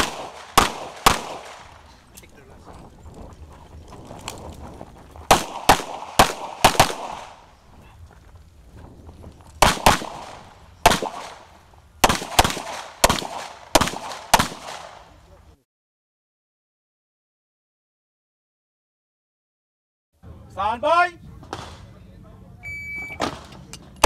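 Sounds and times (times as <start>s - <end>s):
pistol shots in quick pairs: 0.0s - 1.8s, 5.3s - 7.4s, 9.6s - 15.1s.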